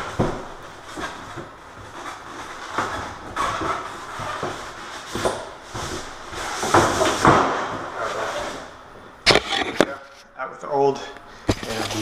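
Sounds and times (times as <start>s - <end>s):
cardboard scraping and rustling: 0.0s - 8.7s.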